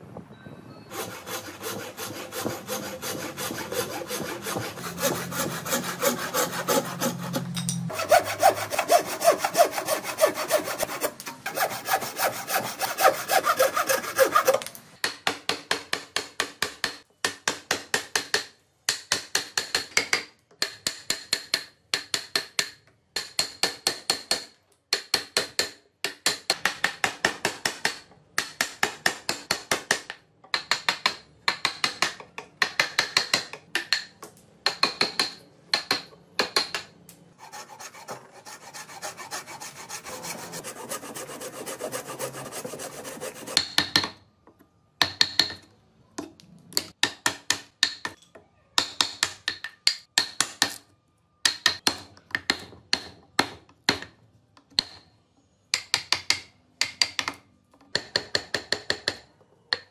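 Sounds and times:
chisel scraping wood: 0.9s - 14.7s, 37.4s - 43.6s
hand saw cutting wood: 0.9s - 14.8s, 37.4s - 43.7s.

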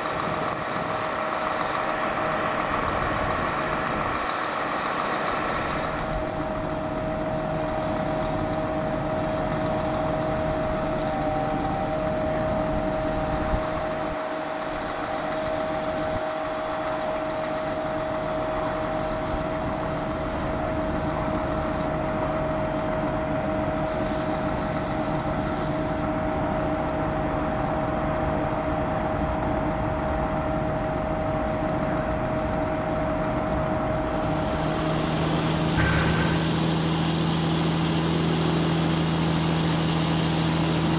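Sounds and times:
diesel engine idling: 0.0s - 28.6s, 33.7s - 40.9s
steady whine: 30.5s - 40.9s.

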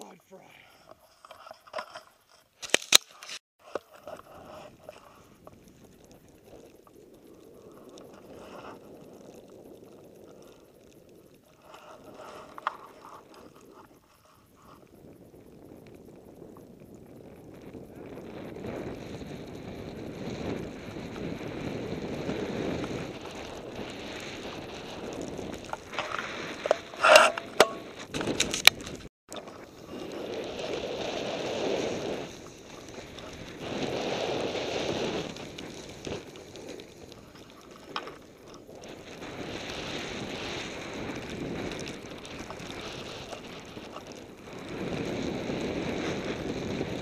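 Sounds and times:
faint clicks: 0.8s - 17.9s
wind on microphone: 3.7s - 47.0s
skis hissing through powder snow: 18.4s - 27.2s, 29.6s - 47.0s.

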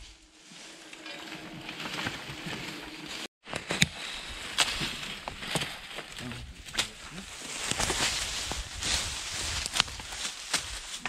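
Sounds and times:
dry leaves rustling and scraping: 0.0s - 11.0s
sticks snapping and knocking: 9.6s - 11.0s.

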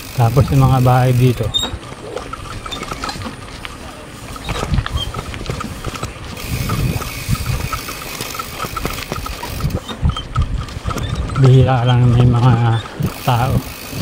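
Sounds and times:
bicycle freewheel ticking: 0.0s - 14.0s
wind on microphone: 4.4s - 14.0s.

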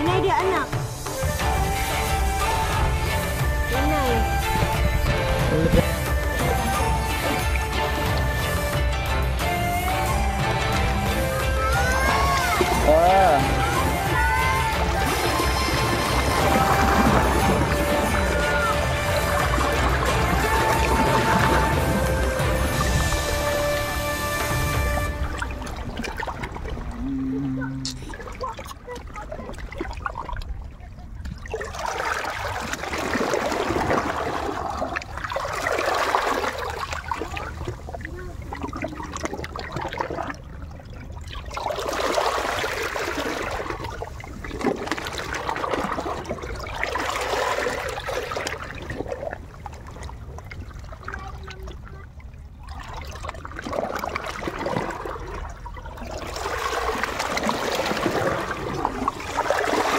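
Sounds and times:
small waves washing over rocks: 53.4s - 59.9s.

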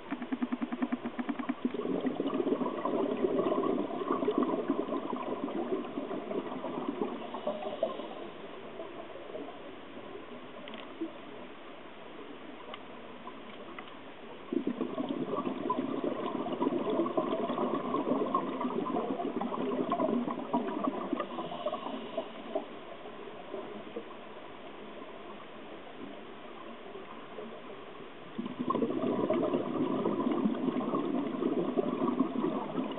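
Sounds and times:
underwater air bubbling: 0.0s - 10.1s, 14.4s - 24.2s, 28.3s - 32.9s
low hiss: 0.0s - 32.9s.

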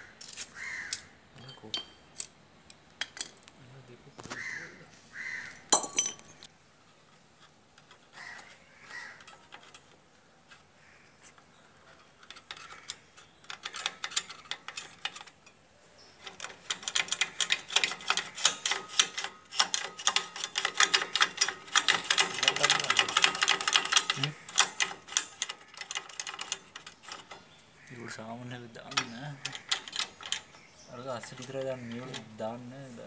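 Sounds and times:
metallic clinks of hand tools: 1.4s - 2.1s
fast metallic clicks: 12.2s - 15.4s, 16.2s - 27.5s, 28.7s - 32.4s.

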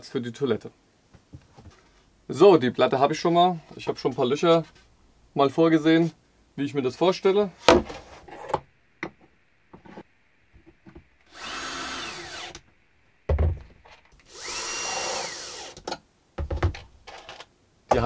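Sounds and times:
cordless drill whining: 11.3s - 12.6s, 14.2s - 15.8s.

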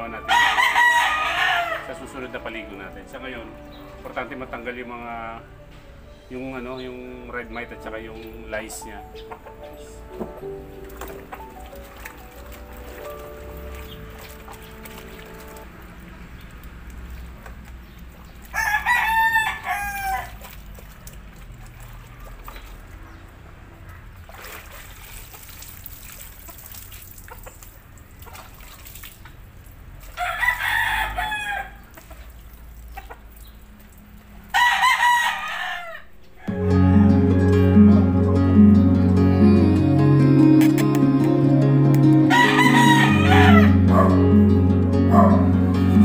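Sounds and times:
rooster crowing: 0.2s - 2.1s, 18.5s - 20.4s, 30.2s - 31.8s, 34.5s - 37.6s, 42.3s - 44.3s.

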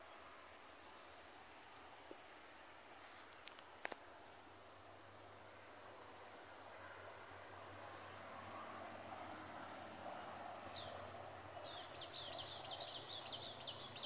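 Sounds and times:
insects droning: 0.0s - 14.0s.

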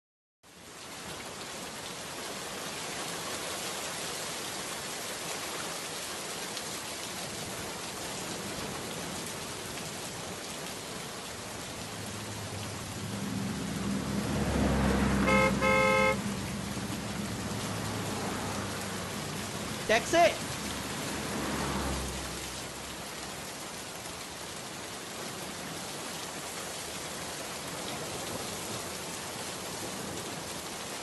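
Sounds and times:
steady rain falling: 0.5s - 31.0s
car engine: 11.8s - 19.9s, 20.5s - 23.0s
car horn toots: 15.2s - 16.4s.

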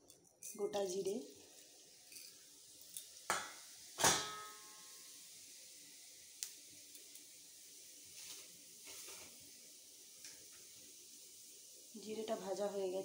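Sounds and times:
cumin seeds sizzling in oil: 0.0s - 13.0s
utensil clanking against metal pan: 3.3s - 4.6s.

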